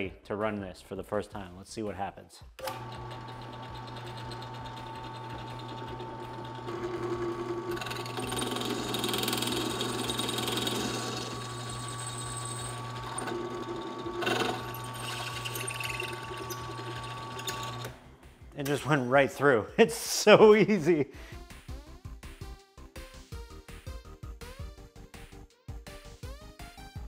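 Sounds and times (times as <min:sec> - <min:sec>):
drill press motor hum: 0:02.6 - 0:18.2
drill bit cutting metal: 0:02.7 - 0:17.9.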